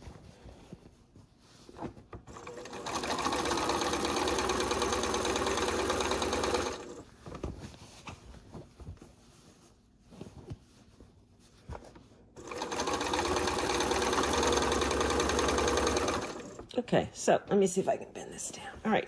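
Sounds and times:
faint rustles and clicks: 0.0s - 2.3s, 7.0s - 12.4s
sewing machine stitching: 2.3s - 7.0s, 12.4s - 16.7s.

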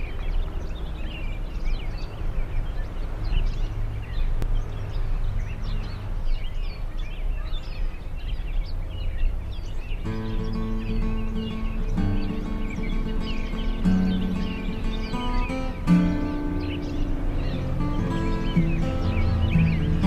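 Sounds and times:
small birds chirping: 0.0s - 20.0s
low outdoor rumble: 9.0s - 20.0s.

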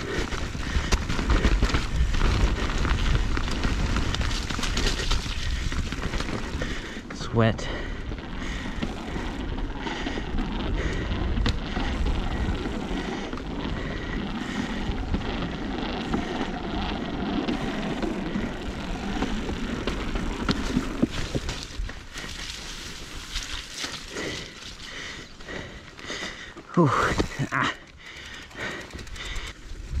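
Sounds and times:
tyres rumbling on rock: 0.0s - 30.0s
wind rushing over microphone: 28.9s - 30.0s.

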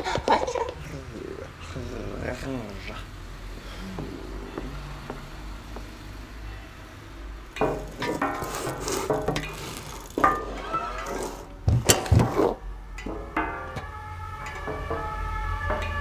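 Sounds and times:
cartoon clattering and scraping: 7.6s - 13.6s.

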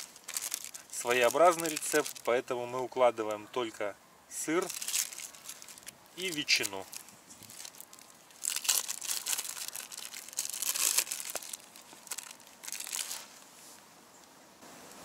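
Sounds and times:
plastic packaging crinkling: 0.0s - 2.4s, 4.5s - 13.4s.

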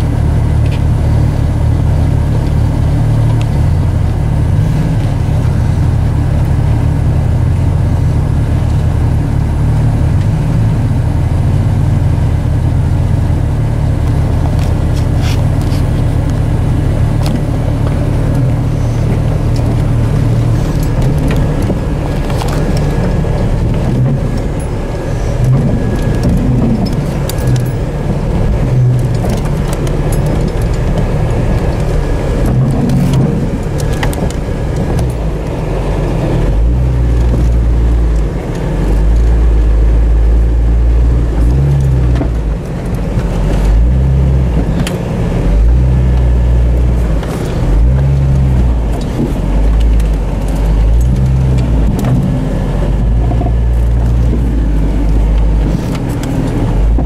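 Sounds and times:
jeep engine running at low revs: 0.0s - 57.0s.

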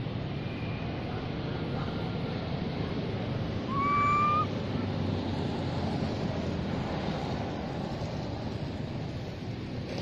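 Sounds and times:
baby monkey coo call: 3.7s - 4.5s.

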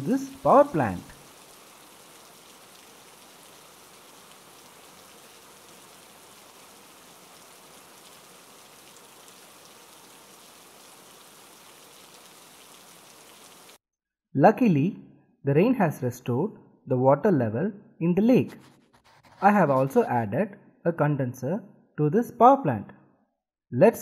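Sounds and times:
steady rain: 0.0s - 13.8s.

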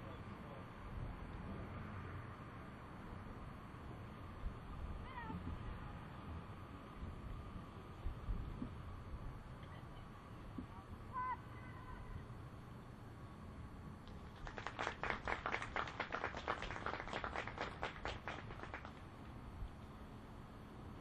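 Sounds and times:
scattered hand clapping: 14.0s - 19.1s.

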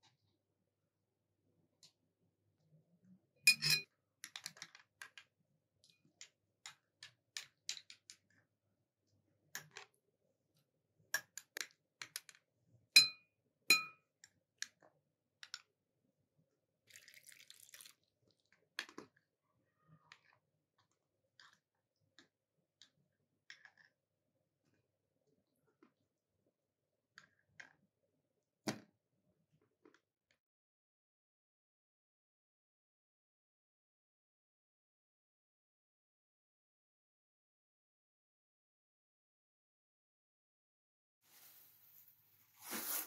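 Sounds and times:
spoon clinking against glass jars: 3.5s - 3.9s, 13.0s - 14.0s.

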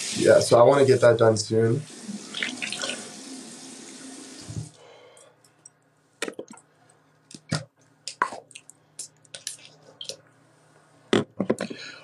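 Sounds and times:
tap running water: 1.9s - 4.8s.

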